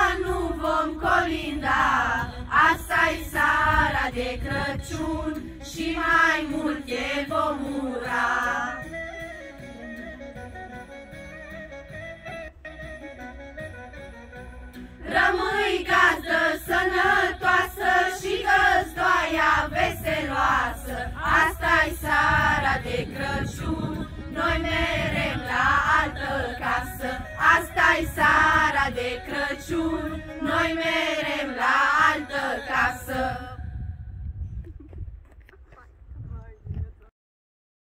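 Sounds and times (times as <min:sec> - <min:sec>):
girls singing in chorus: 0:00.0 - 0:08.8, 0:15.0 - 0:33.6.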